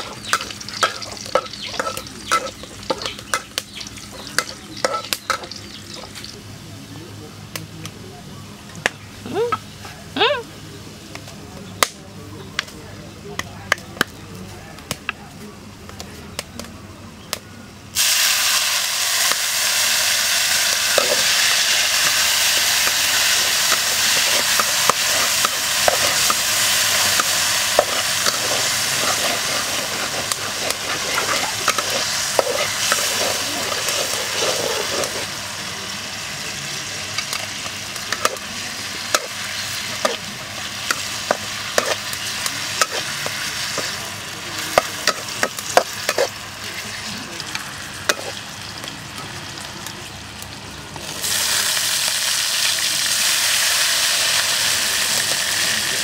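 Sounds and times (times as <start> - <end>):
metal ladle scraping a wok: 0.0 - 3.5, 4.1 - 6.2, 20.9 - 35.3, 39.1 - 44.0, 44.8 - 46.4, 48.1 - 48.4
garlic sizzling in hot oil: 0.0 - 6.5, 18.0 - 56.0.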